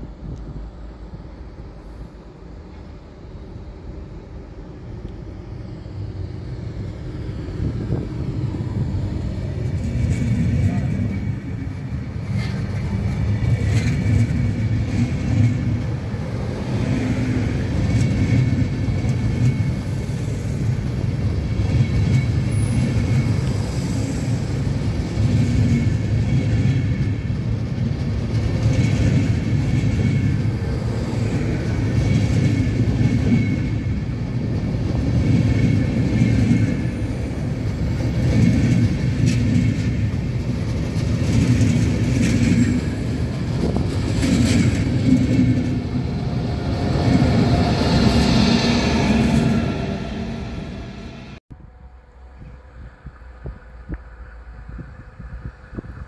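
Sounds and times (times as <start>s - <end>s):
train rumbling: 0.0s - 56.0s
train clicks: 8.8s - 48.4s.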